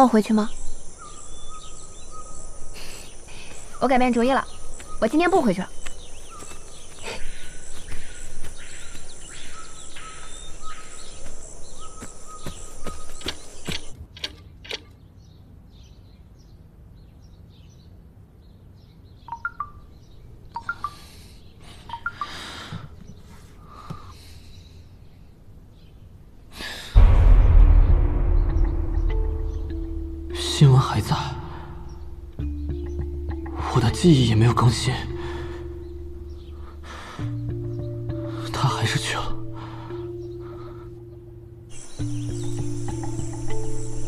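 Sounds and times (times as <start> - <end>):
loud low boom: 27.0 - 32.4
music: 27.0 - 44.0
insects chorus: 41.7 - 44.0.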